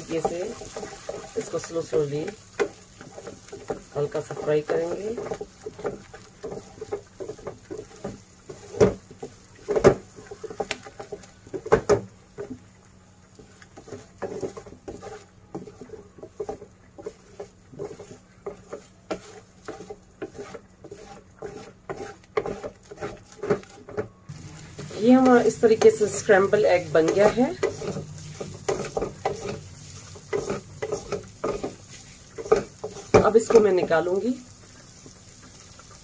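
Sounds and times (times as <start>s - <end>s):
spatula scraping pan: 0.0s - 12.6s, 13.4s - 36.0s.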